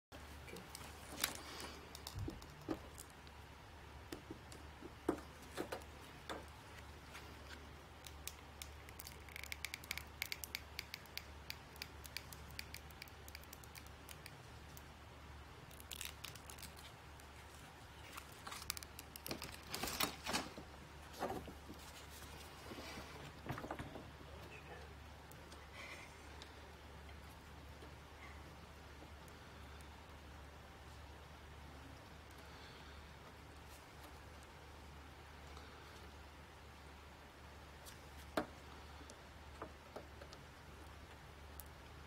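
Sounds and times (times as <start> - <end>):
low steady hum: 0.1 - 42.0
small clicks: 8.0 - 14.9
foil pouch crinkling: 15.7 - 20.2.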